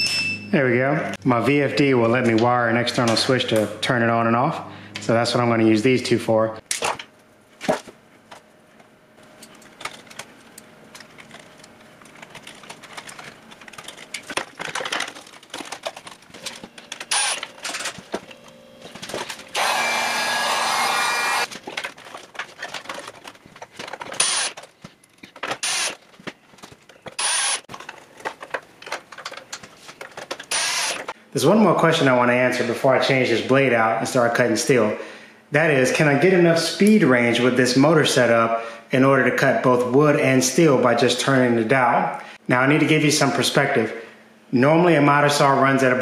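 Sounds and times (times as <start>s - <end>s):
power tool running: 16.9s - 18.0s, 18.8s - 21.5s, 24.1s - 24.6s, 25.5s - 26.0s, 27.1s - 27.7s, 30.5s - 31.1s.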